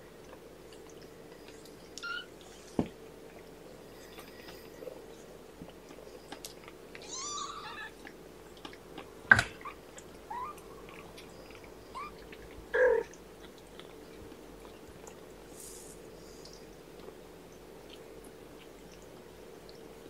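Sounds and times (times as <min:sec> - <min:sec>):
kittens mewing: 0:07.0 - 0:08.0, 0:12.8 - 0:13.2.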